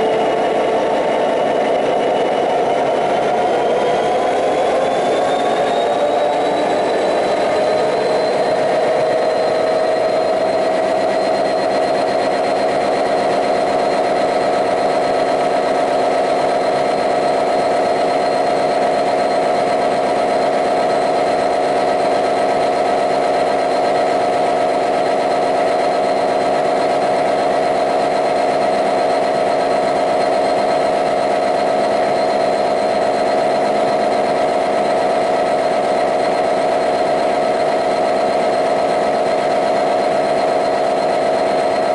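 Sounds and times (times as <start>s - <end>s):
steady high whine: 0.0s - 41.9s.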